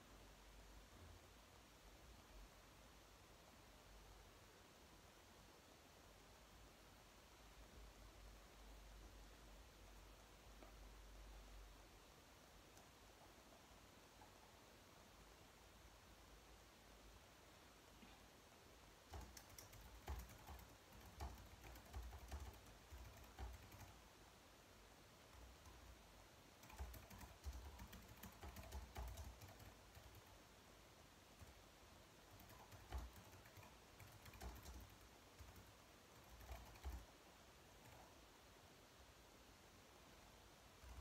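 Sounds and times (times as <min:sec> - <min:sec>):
faint typing on keyboard: 0:09.8 - 0:11.5, 0:12.5 - 0:14.6, 0:19.0 - 0:24.2, 0:25.2 - 0:30.5, 0:31.3 - 0:38.3, 0:40.7 - 0:41.0.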